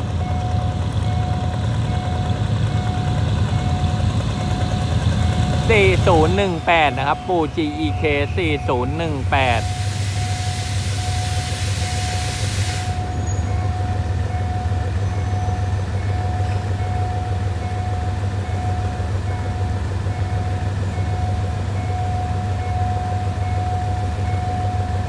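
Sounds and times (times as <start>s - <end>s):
level crossing warning tone: 0.0s - 25.0s
locomotive engine low drone: 0.0s - 25.0s
hiss: 9.6s - 13.0s.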